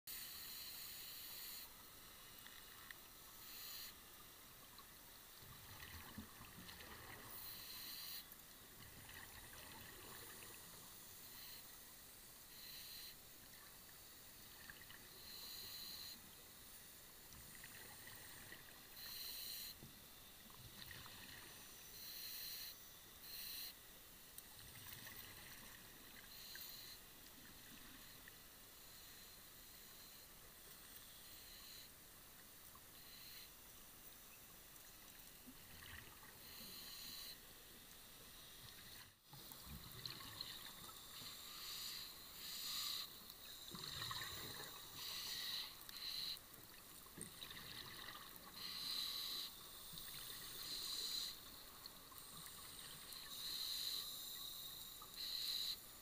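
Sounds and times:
faint steady hiss: 0:00.1 - 0:56.0
underwater bubble bursts hissing: 0:38.8 - 0:55.7.

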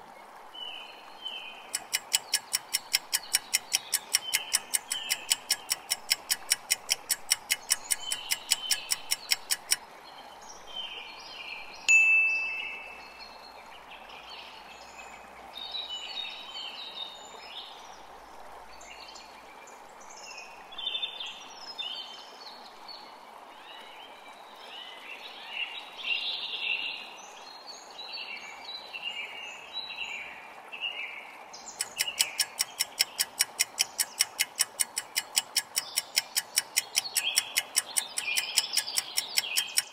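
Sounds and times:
birdsong: 0:00.6 - 0:17.8, 0:27.7 - 0:39.9
countdown clock ticking rapidly: 0:01.8 - 0:09.8, 0:31.8 - 0:39.9
steady background hiss: 0:10.2 - 0:19.2
bright chime: 0:11.9 - 0:13.2.

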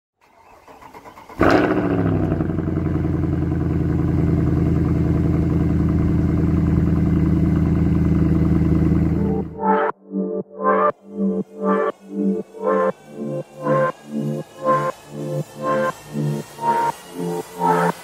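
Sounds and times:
car engine starting and idling: 0:00.2 - 0:09.6.

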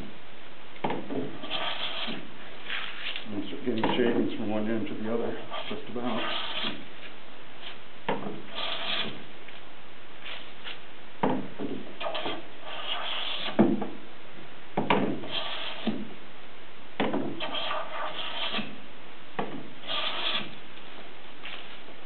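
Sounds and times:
hand plane shaving hiss: 0:01.3 - 0:03.2, 0:05.4 - 0:06.8, 0:08.5 - 0:09.2, 0:12.0 - 0:13.6, 0:15.2 - 0:16.0, 0:17.4 - 0:18.8, 0:19.8 - 0:20.6.

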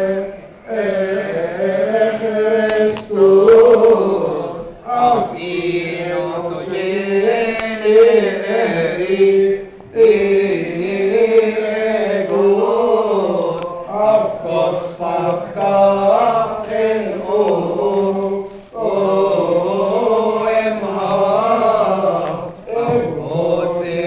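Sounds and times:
voices chanting a hymn: 0:00.0 - 0:24.0.

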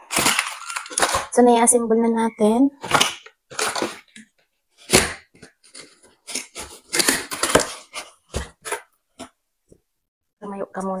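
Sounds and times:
cardboard rustling and scraping: 0:04.8 - 0:09.4.

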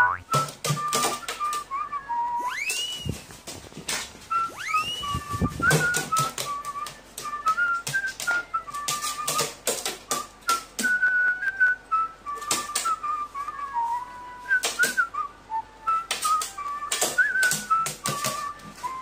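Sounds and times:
whistled melody: 0:00.0 - 0:03.3, 0:04.3 - 0:19.0.

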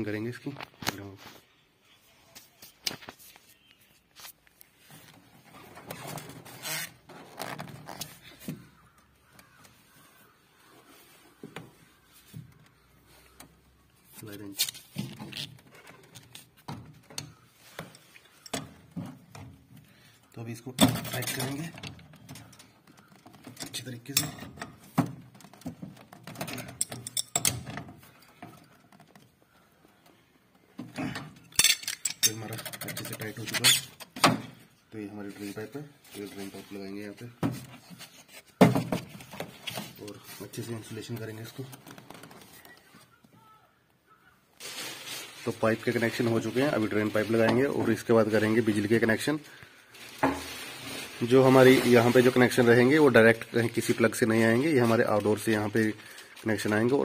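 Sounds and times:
rustling scrapes: 0:35.2 - 0:42.8, 0:44.6 - 0:49.2, 0:49.9 - 0:57.0.

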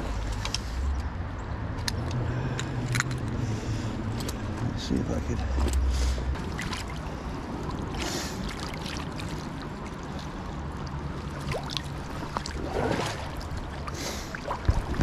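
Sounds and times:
stream water running: 0:02.9 - 0:15.0
fish splashing in water: 0:06.0 - 0:15.0.

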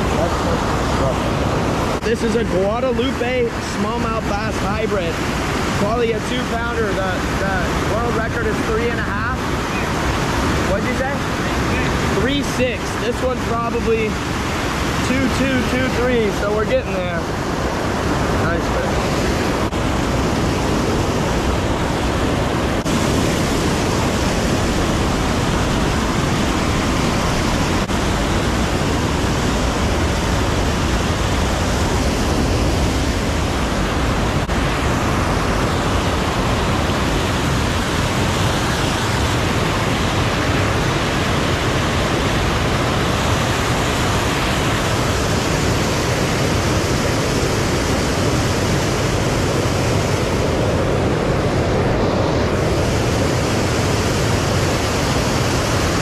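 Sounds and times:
water rushing over dam spillway: 0:00.0 - 0:56.0.

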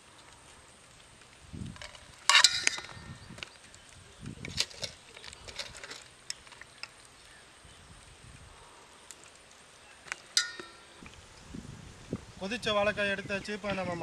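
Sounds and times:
metal cookware clanking: 0:10.4 - 0:10.9.

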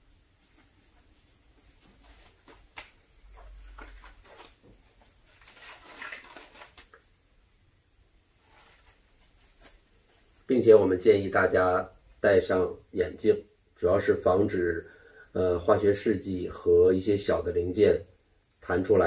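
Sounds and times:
wrapper rustling: 0:00.6 - 0:07.0.

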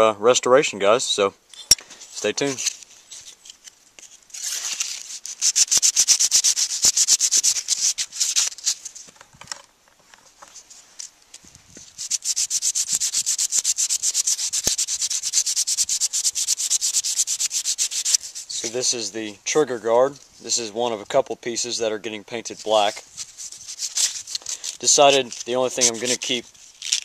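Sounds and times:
sandpaper rubbing on metal: 0:04.3 - 0:08.9, 0:11.8 - 0:19.1, 0:22.5 - 0:27.0.

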